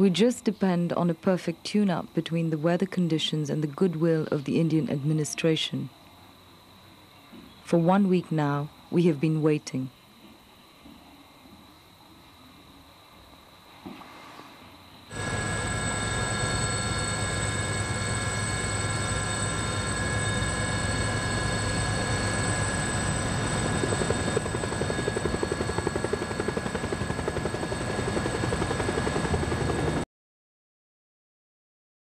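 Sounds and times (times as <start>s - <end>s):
helicopter turbine whine and rotor: 15.1s - 30.0s.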